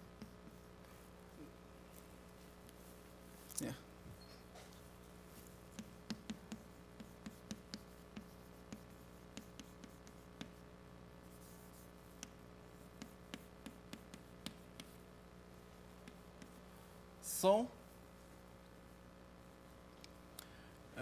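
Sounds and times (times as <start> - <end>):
steady low hum: 0.0 - 21.0
chalk tapping on blackboard: 0.2 - 1.1, 5.3 - 10.6, 11.3 - 15.0, 15.9 - 16.6.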